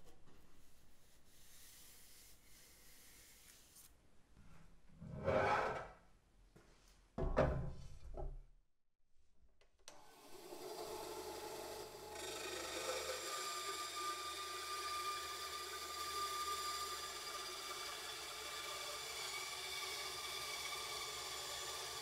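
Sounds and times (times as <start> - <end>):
band saw cutting wood: 10.2 - 22.0.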